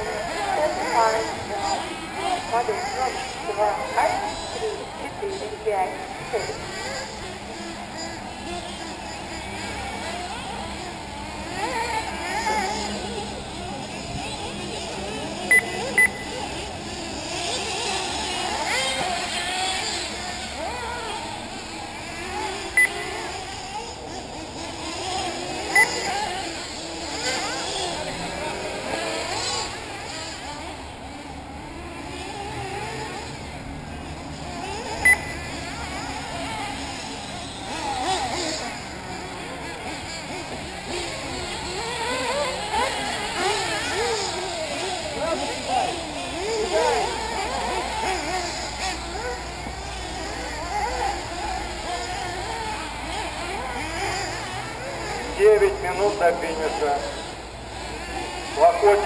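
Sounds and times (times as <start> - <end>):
rc car engines buzzing: 0.0 - 59.0
loud electronic beep: 15.5 - 16.3, 35.0 - 35.4.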